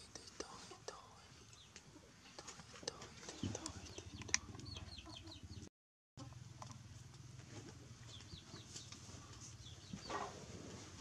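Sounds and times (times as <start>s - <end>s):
chicks peeping: 3.2s - 5.7s, 8.0s - 10.4s.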